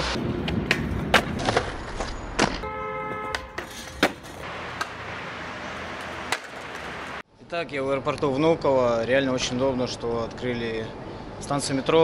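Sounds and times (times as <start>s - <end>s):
skateboard wheels rolling on pavement: 0.0s - 7.2s
skateboard clacking on ground: 3.3s - 5.0s, 5.9s - 7.0s.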